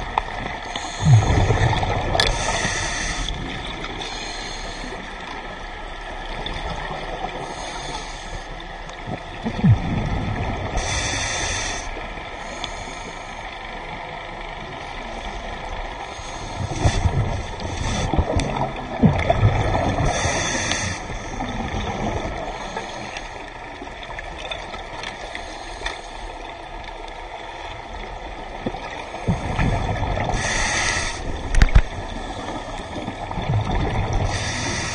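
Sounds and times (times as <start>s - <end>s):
bubbling of exhaled air: 0.0s - 5.4s, 9.0s - 12.0s, 16.1s - 23.3s, 28.6s - 34.9s
underwater water noise: 0.0s - 34.9s
diver breathing through regulator: 0.5s - 5.3s, 7.4s - 8.6s, 10.7s - 13.6s, 16.0s - 23.5s, 25.2s - 26.4s, 29.1s - 33.2s, 34.1s - 34.9s.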